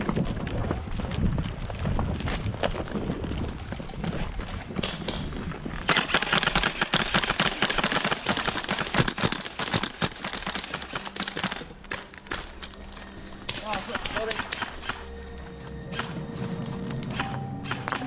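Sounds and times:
airsoft guns firing: 0:05.8 - 0:12.6, 0:13.5 - 0:15.0, 0:17.1 - 0:18.0.

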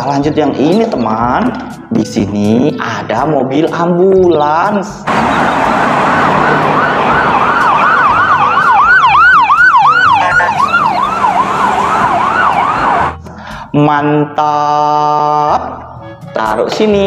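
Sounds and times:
passing road traffic: 0:05.0 - 0:13.6
ambulance siren yelping: 0:05.1 - 0:13.3.

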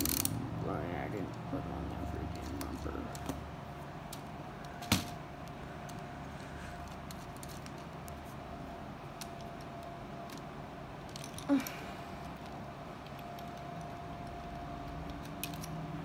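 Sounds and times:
faint steady hum: 0:00.0 - 0:16.0
plastic parts clicking and rattling: 0:06.8 - 0:08.2, 0:09.2 - 0:15.9.

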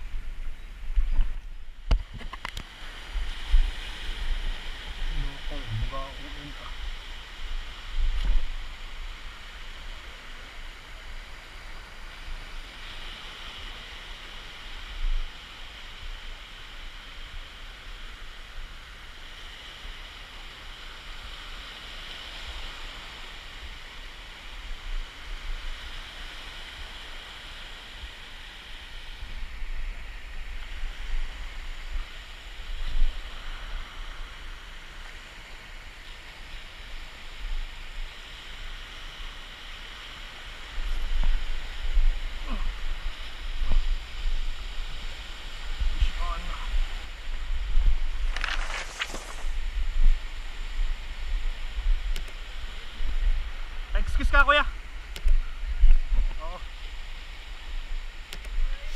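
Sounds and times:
hiss of water: 0:02.6 - 0:58.9.

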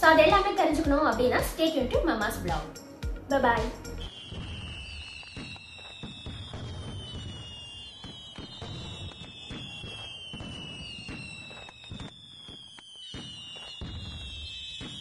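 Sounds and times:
fireworks bangs and crackles: 0:03.6 - 0:15.0
falling firework whistles: 0:04.0 - 0:15.0.

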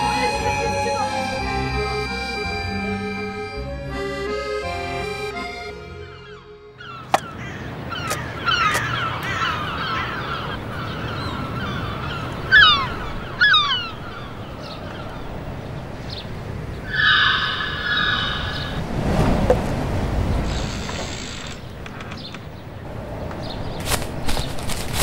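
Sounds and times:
birds crying: 0:00.0 - 0:18.9, 0:20.2 - 0:24.6
outdoor ambience rumble: 0:04.9 - 0:25.0
wavering bird call: 0:05.8 - 0:15.1, 0:16.8 - 0:18.8.

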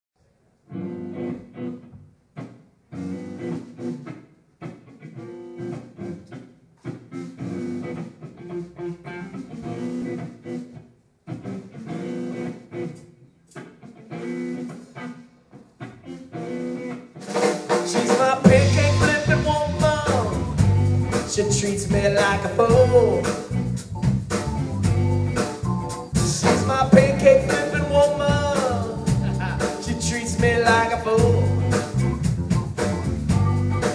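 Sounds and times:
bass guitar: 0:00.7 - 0:13.1, 0:17.9 - 0:33.9
electric guitar chords: 0:00.7 - 0:33.9
drums with cymbals: 0:17.2 - 0:33.9.

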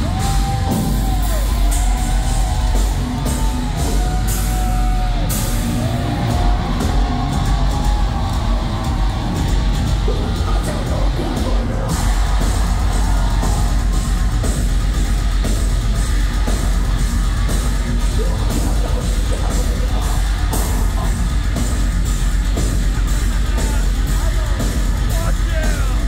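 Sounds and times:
shouted vocals: 0:00.0 - 0:15.0, 0:23.5 - 0:26.0
distorted guitars: 0:00.0 - 0:26.0
pounding drums: 0:00.0 - 0:26.0.

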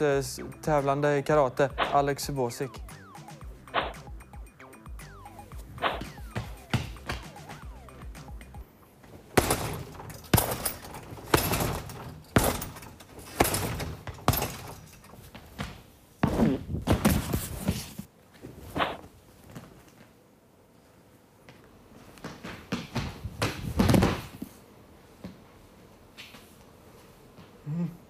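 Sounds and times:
punches and kicks on heavy bag: 0:09.3 - 0:15.0.

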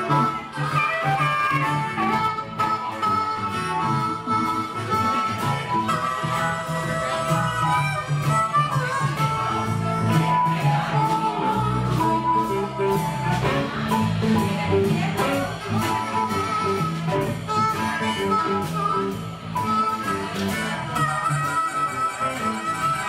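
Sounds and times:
blues band playing: 0:00.0 - 0:23.0
harmonica long held notes: 0:00.0 - 0:23.0.

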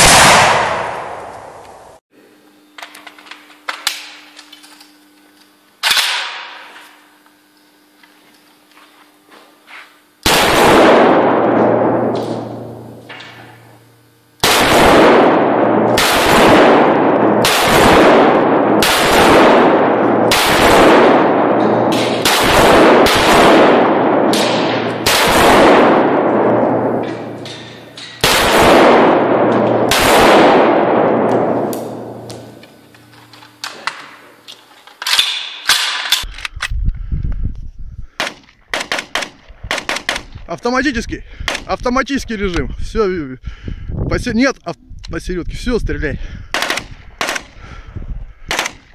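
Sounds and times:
gunshots echoing indoors: 0:00.0 - 0:01.9, 0:05.8 - 0:06.7, 0:10.2 - 0:13.7, 0:14.4 - 0:32.6.

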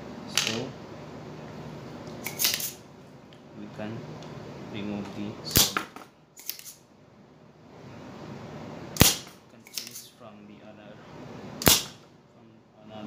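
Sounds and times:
desoldering pump snapping: 0:02.0 - 0:02.8, 0:05.5 - 0:06.8, 0:09.0 - 0:10.1, 0:11.6 - 0:12.0.

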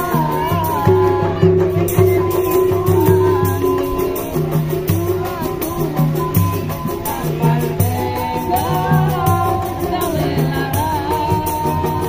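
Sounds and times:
acoustic guitar: 0:00.0 - 0:12.0
person singing: 0:00.0 - 0:12.0
shaker percussion: 0:00.0 - 0:12.0.

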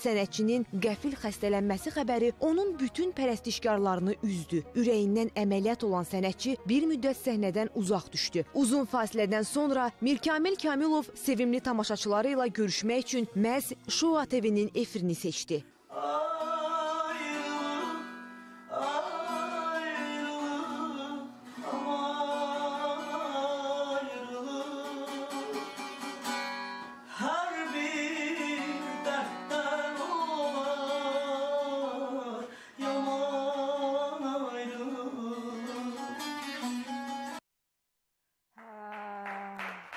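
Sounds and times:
man singing: 0:15.9 - 0:26.2, 0:27.1 - 0:36.5
long-necked lute playing: 0:16.8 - 0:27.7, 0:32.8 - 0:37.4.

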